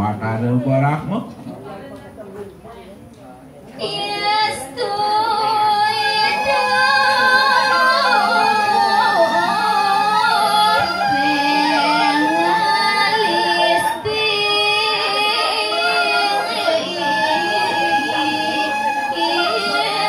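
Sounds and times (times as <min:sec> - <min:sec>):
woman singing into microphone: 0:03.8 - 0:20.0.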